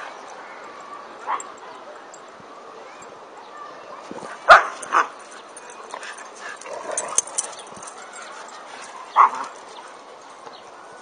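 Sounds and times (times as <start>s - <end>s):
dog barking: 4.5s - 5.1s.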